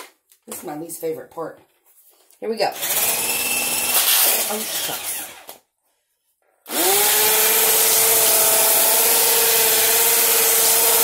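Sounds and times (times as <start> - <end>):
stick blender motor whining: 2.8 - 5.6, 6.7 - 11.0.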